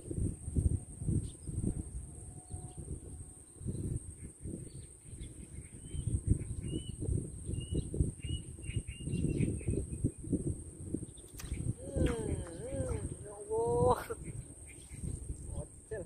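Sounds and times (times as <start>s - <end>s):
wind buffeting microphone: 0.0s - 16.0s
bird chirping: 3.4s - 10.1s, 11.1s - 15.8s.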